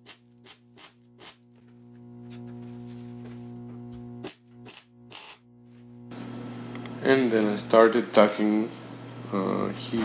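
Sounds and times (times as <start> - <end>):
welder crackling zaps: 0.0 - 1.5, 4.0 - 5.6, 8.1 - 8.7.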